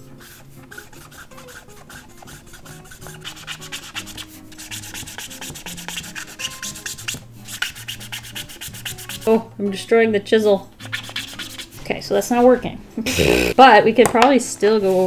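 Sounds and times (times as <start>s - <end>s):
marker scratching on paper: 0.2s - 9.3s, 10.8s - 11.8s.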